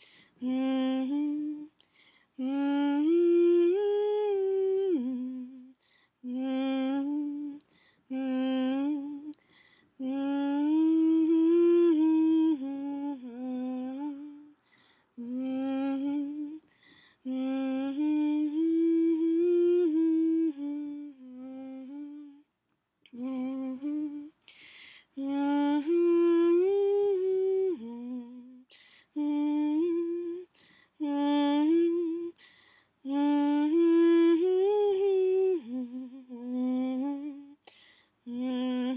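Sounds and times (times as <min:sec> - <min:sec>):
person humming: 0:00.0 - 0:01.7, 0:02.4 - 0:05.7, 0:06.3 - 0:09.4, 0:17.3 - 0:22.4, 0:23.1 - 0:24.4, 0:33.1 - 0:37.6, 0:38.3 - 0:38.9.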